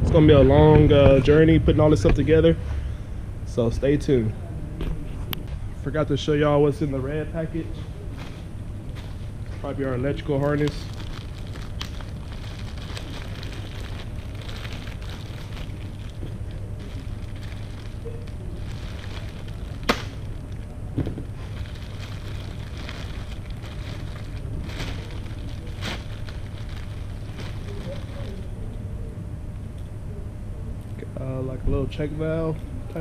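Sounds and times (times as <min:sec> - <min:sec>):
steady low hum: 0:00.0 - 0:33.0
plastic packaging crinkling: 0:08.0 - 0:28.7.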